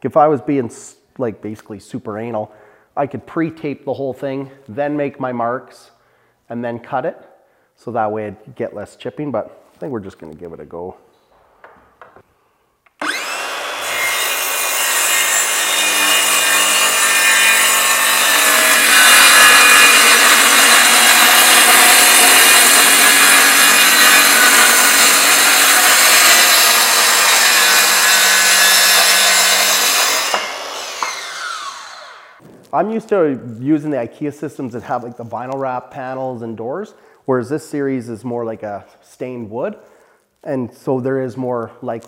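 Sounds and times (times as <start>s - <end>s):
circular saw cutting wood: 13.0s - 32.4s.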